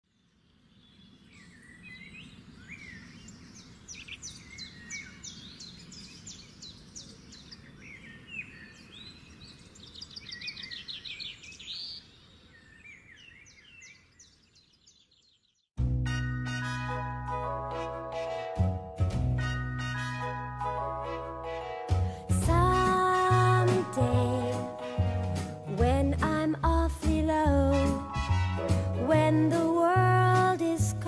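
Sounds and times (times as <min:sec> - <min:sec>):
birds chirping and singing: 0:00.5 - 0:15.6.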